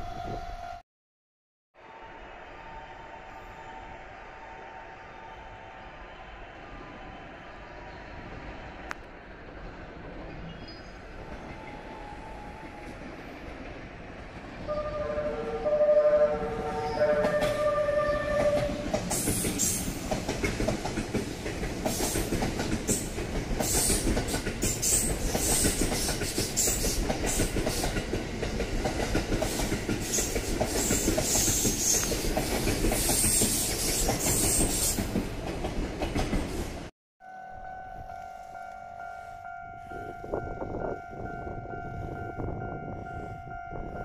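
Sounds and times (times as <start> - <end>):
horn-like tones: 14.7 - 18.9
train wheels rumbling on rails: 16.5 - 36.9.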